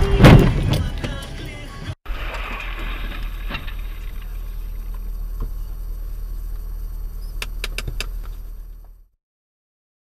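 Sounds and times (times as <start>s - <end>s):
low hum inside car cabin: 0.0s - 9.2s
sharp clicks: 7.2s - 8.4s.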